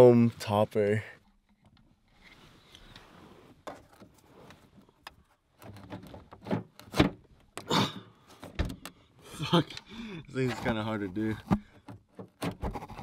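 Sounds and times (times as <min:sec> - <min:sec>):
cord rustling against car trim: 0:01.4 - 0:07.6
knocks and thumps: 0:05.7 - 0:08.9, 0:10.5 - 0:13.0.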